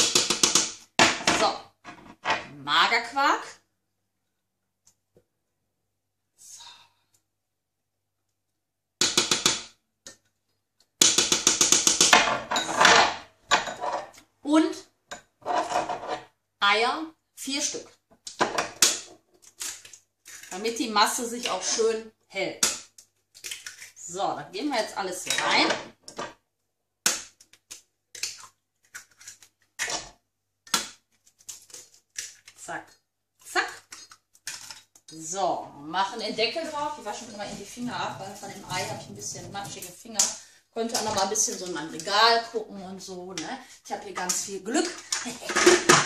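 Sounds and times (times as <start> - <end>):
spatula scraping metal bowl: 15.4 - 16.3, 36.1 - 40.0.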